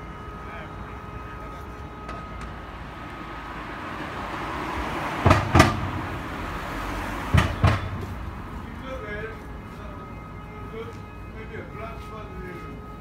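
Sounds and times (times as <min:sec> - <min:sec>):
vehicle passing: 0:00.0 - 0:11.9
street traffic: 0:00.0 - 0:13.0
wheels thumping over bump: 0:04.9 - 0:06.4, 0:07.2 - 0:08.3.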